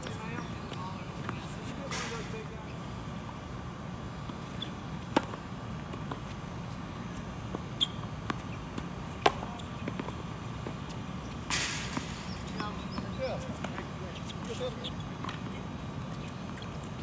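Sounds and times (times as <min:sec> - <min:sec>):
tennis ball bouncing on court: 0:04.3 - 0:06.4, 0:07.1 - 0:17.0
tennis rackets hitting ball: 0:04.3 - 0:06.4, 0:07.1 - 0:13.8.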